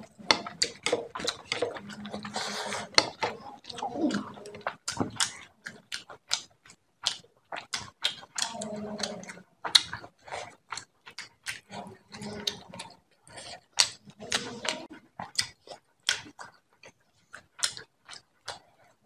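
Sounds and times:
chewing and lip-smacking: 0:00.0 - 0:19.0
throat grunts: 0:03.0 - 0:05.5.

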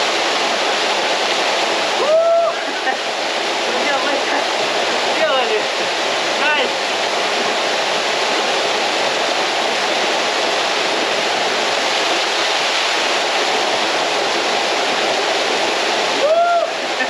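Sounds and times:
waterfall pouring into pool: 0:00.0 - 0:17.0.

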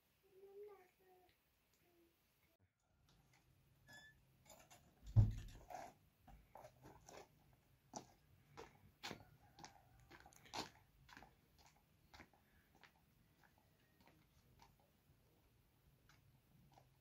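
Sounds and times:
footsteps on dry dirt: 0:07.0 - 0:14.8.

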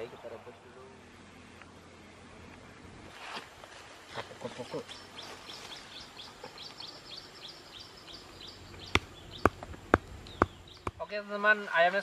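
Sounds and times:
bird chirping: 0:04.4 - 0:11.2.

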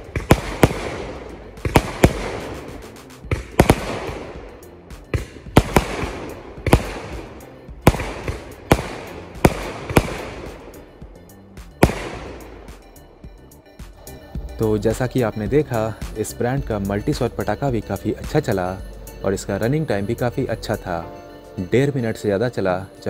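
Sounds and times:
firework launch thumps and bursts: 0:00.0 - 0:10.8
firework crackling: 0:00.0 - 0:11.0.

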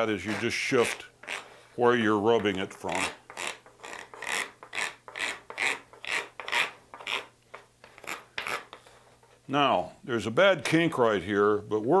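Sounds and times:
stick scraping track ties: 0:02.3 - 0:09.3.

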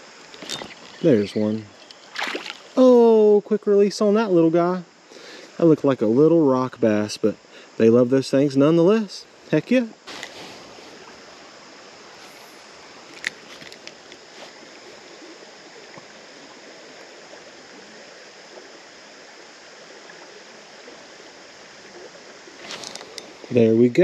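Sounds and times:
creek water running over riffle: 0:00.0 - 0:24.0
faint ticks: 0:13.1 - 0:14.3.

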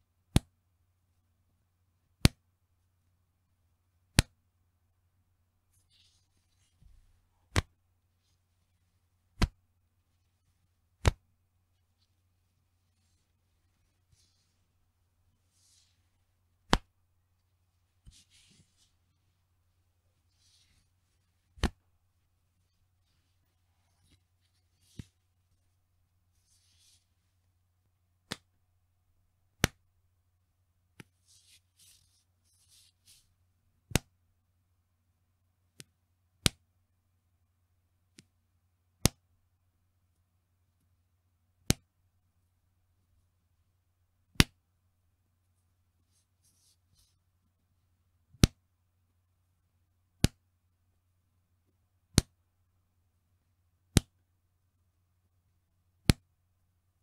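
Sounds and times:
soft rustling: 0:05.7 - 0:27.6, 0:31.0 - 0:33.5, 0:45.5 - 0:47.4
elastic band snapping: 0:07.5 - 0:07.8, 0:09.4 - 0:09.6, 0:11.0 - 0:11.2, 0:21.6 - 0:21.8, 0:53.9 - 0:54.1.

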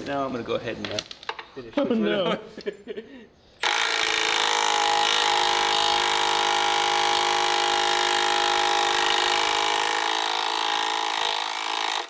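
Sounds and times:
impact wrench hammering: 0:03.6 - 0:12.0.

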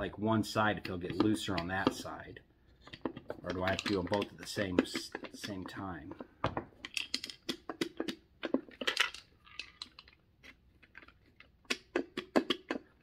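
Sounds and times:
wooden puzzle bars clicking: 0:02.8 - 0:13.0.

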